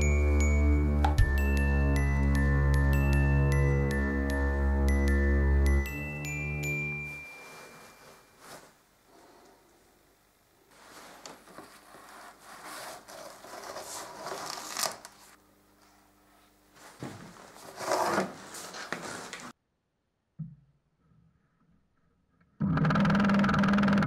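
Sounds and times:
rustling and scraping handling: 7.0 - 9.3, 10.7 - 15.4, 16.7 - 19.5.

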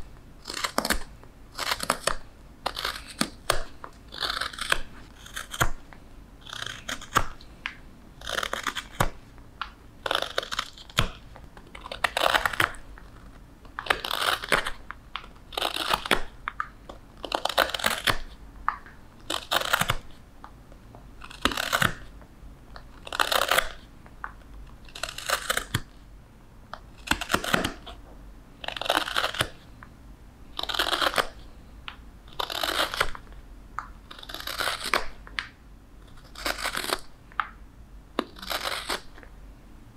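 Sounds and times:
knife scraping wood: 1.6 - 5.7, 6.4 - 7.3, 8.2 - 9.1, 34.1 - 35.1, 36.1 - 37.0, 38.2 - 39.1.

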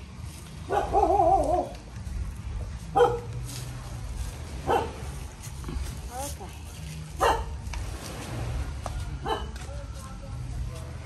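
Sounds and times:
dog barking: 0.7 - 1.7, 3.0 - 3.3, 4.6 - 5.2, 7.2 - 7.6, 9.2 - 9.6.

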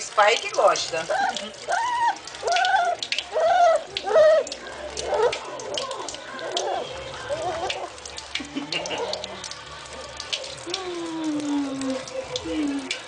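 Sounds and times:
bath water splashing: 0.0 - 13.0
puppy whimpering: 1.0 - 7.9.

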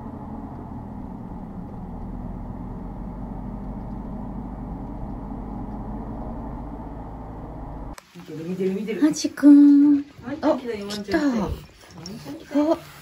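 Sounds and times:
car cabin road and engine drone: 0.0 - 8.0.

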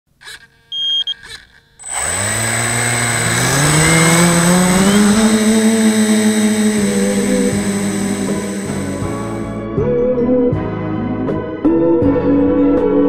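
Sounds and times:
drone motors spinning up: 1.2 - 9.5
high electronic whine: 1.8 - 9.4.

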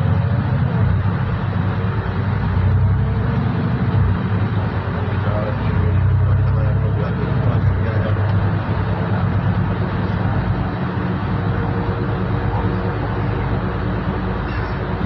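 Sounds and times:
bus engine hum: 0.0 - 15.0
tyre and road noise: 0.0 - 15.0.

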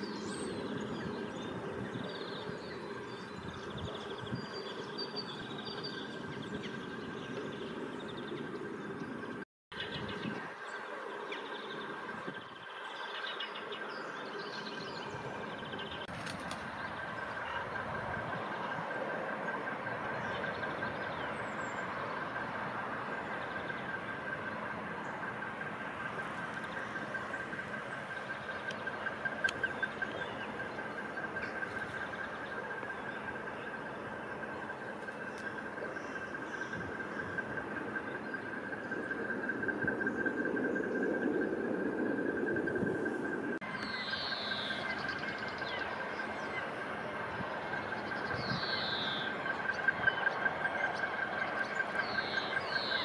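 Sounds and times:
small birds chirping: 0.0 - 41.0, 43.6 - 53.0
distant traffic rumble: 0.0 - 53.0
faint ticks: 28.5 - 30.2.

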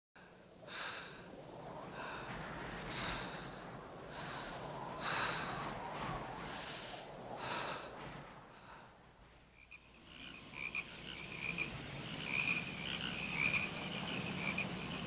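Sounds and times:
heavy breath-like puffs: 0.2 - 9.5.

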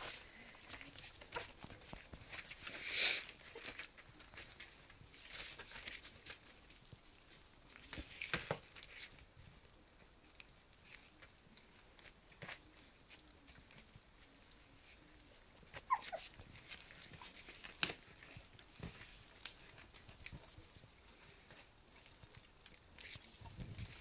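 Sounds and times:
puppies feeding clicks and rustles: 0.0 - 24.0
puppy squeak: 15.8 - 16.4.

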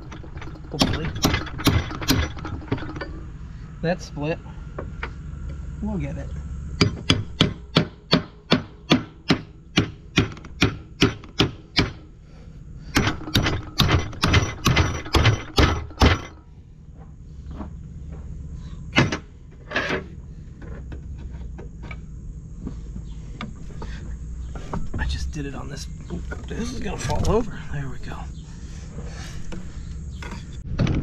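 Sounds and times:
hammer striking metal wedge: 0.7 - 3.0, 6.8 - 12.0, 12.9 - 16.3.

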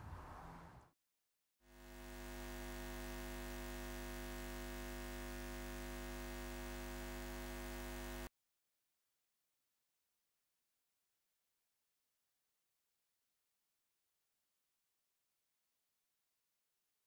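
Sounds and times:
low hum of held tones: 1.7 - 8.3.

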